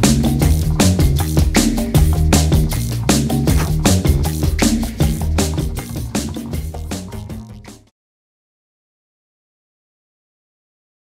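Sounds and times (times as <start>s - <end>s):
background music with steady beat: 0.0s - 7.9s.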